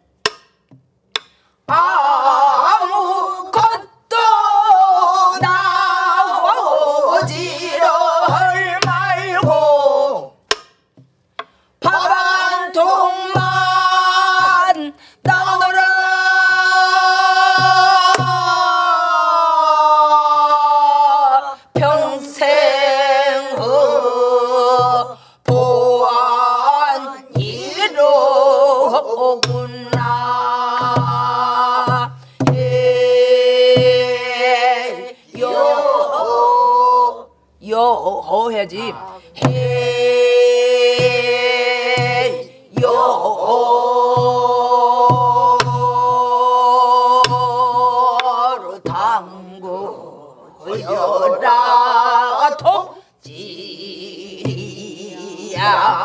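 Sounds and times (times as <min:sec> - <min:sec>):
group singing held wavering notes: 0:01.7 - 0:10.5, 0:11.8 - 0:56.0
low barrel drum strokes: 0:39.0 - 0:46.3.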